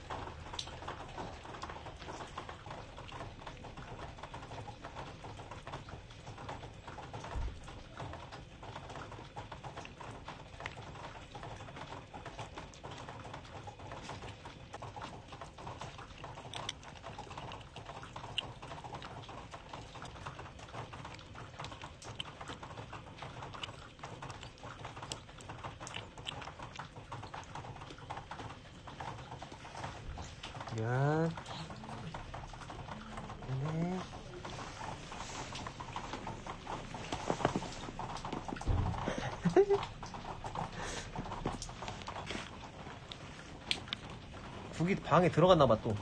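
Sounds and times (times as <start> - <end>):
kitten licking: 8.3 - 46.0
low thump: 38.6 - 39.1.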